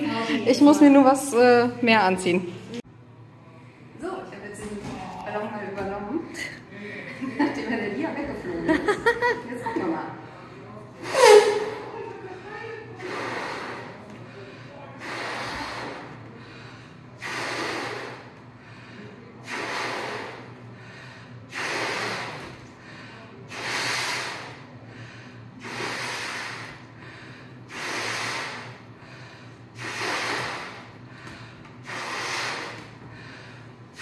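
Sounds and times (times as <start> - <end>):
woman blowing up balloon: 11.0 - 11.8, 13.0 - 14.0, 15.0 - 16.2, 17.2 - 18.3, 19.4 - 20.5, 21.5 - 22.6, 23.5 - 24.6, 25.6 - 26.9, 27.7 - 28.8, 29.8 - 31.0, 31.8 - 32.9
loud rushing breath: 13.0 - 34.0.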